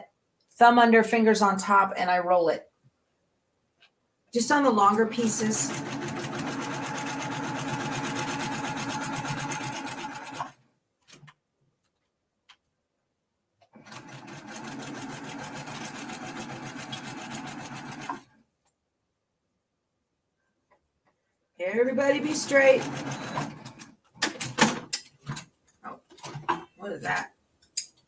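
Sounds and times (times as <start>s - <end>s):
sewing machine stitching: 4.9s - 10.6s, 13.8s - 18.3s, 22.0s - 24.7s.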